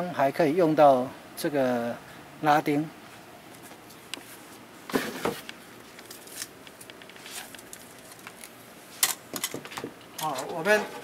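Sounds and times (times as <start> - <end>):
objects clattering on workbench: 4.9 - 5.5.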